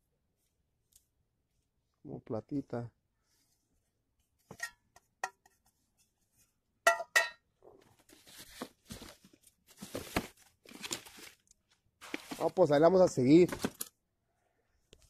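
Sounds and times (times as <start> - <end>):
metal pot clinking: 6.9 - 7.4
clothes rustling: 12.0 - 12.7.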